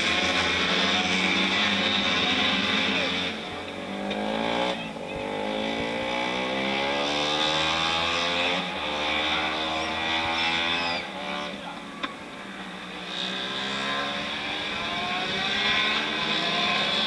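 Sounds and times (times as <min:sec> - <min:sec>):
motorcycle engines revving: 0:00.0 - 0:17.0.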